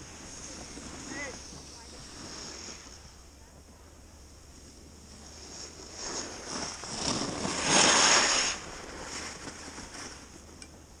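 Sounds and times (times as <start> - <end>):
skis scraping on hard snow: 0.0 - 3.8, 4.5 - 10.6
skis gliding hiss: 0.0 - 11.0.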